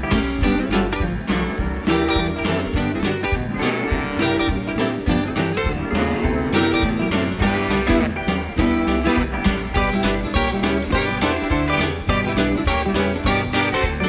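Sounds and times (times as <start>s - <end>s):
western swing band playing: 0.0s - 14.0s.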